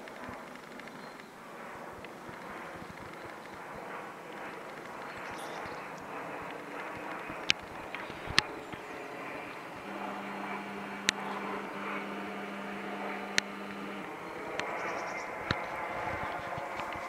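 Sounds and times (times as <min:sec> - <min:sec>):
jet flying over: 0:00.0 - 0:17.0
steady low hum: 0:00.1 - 0:17.0
sharp clicks: 0:04.3 - 0:14.9.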